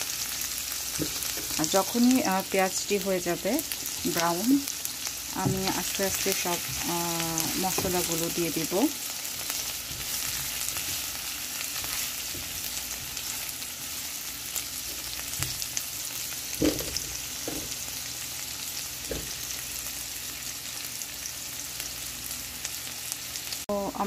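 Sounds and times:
onion sizzling in oil: 0.0s - 24.0s
spatula stirring in pan: 3.7s - 15.8s.

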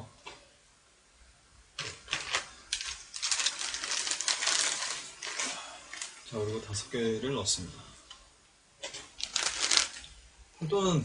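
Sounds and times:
plastic packet crinkling: 1.8s - 6.4s, 8.8s - 10.2s.

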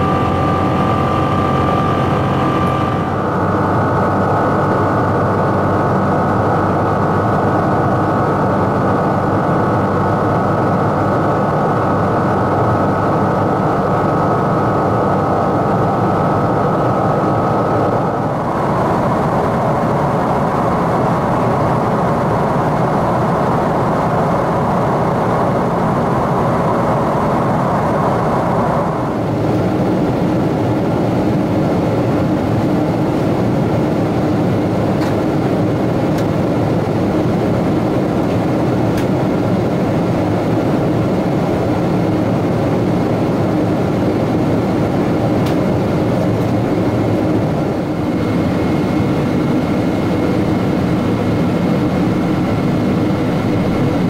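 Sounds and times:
faint high whine: 0.0s - 6.2s
jet engine roar and rushing air: 0.0s - 54.0s.

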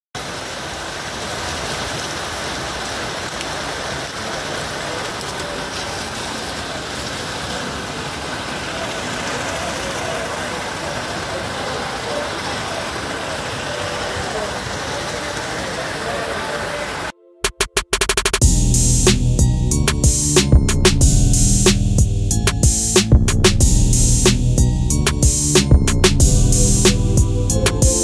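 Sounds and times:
water splashing in a pool: 0.2s - 17.1s.

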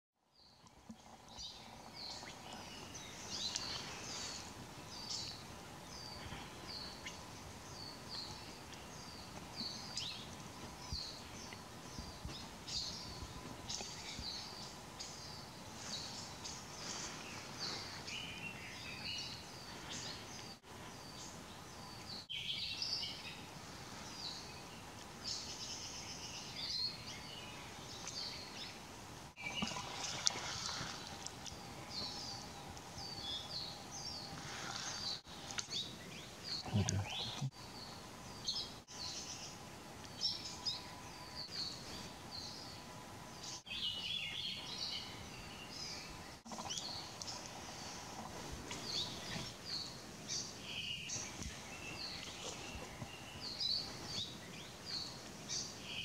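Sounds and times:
songbirds chirping and trilling: 0.4s - 56.0s.

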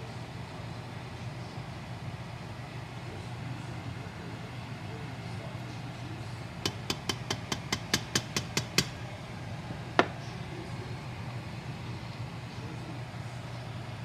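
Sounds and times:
steady low hum: 0.0s - 14.0s
spoon knocking pot with ring: 6.6s - 9.0s.

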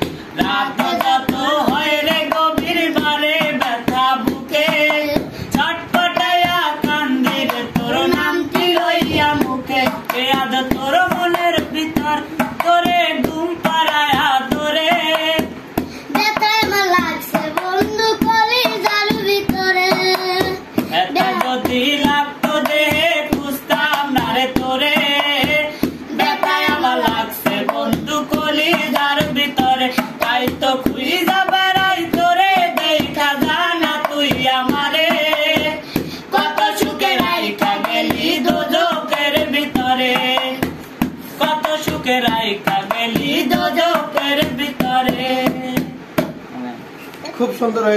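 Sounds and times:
man singing folk song: 0.0s - 46.1s
hand drumming on metal pot: 0.0s - 46.4s.

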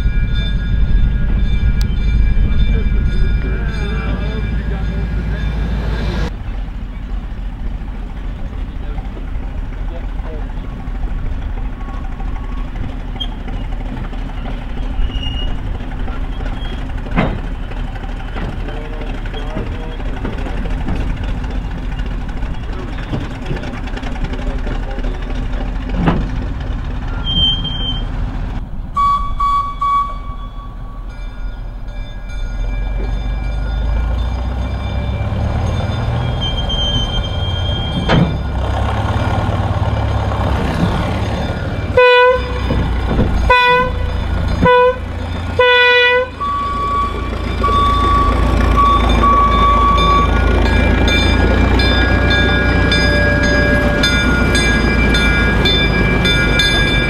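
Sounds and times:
locomotive engine running: 0.0s - 57.0s
locomotive horn blasts: 41.8s - 47.3s.

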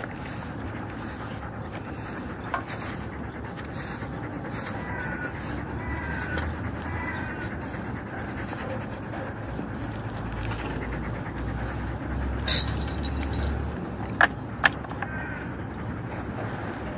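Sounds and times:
push broom sweeping concrete: 2.0s - 3.0s.

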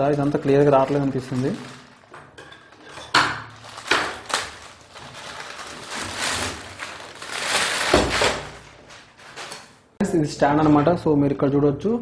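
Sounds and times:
plastic bag crinkling: 0.0s - 9.9s.

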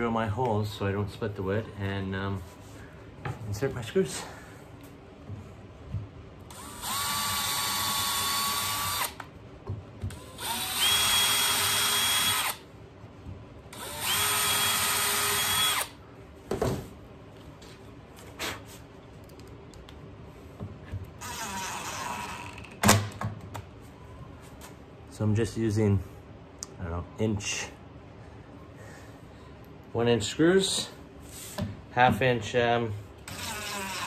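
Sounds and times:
cordless drill whining: 6.5s - 9.2s, 10.1s - 12.6s, 13.7s - 16.0s, 21.2s - 22.7s, 33.3s - 34.0s.

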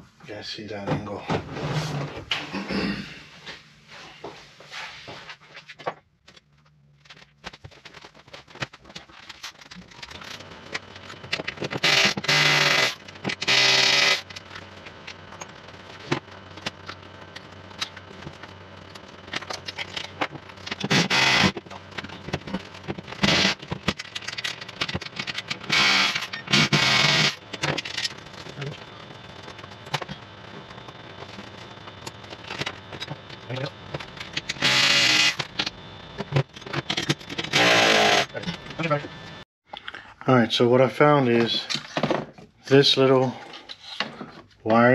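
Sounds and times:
loud noisy bursts: 11.8s - 14.2s.

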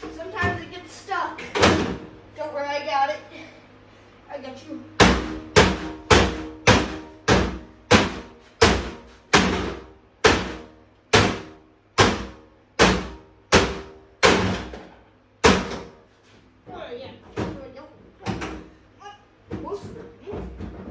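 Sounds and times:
hammer striking television cabinet: 1.5s - 2.1s, 5.0s - 14.8s, 15.4s - 16.0s.

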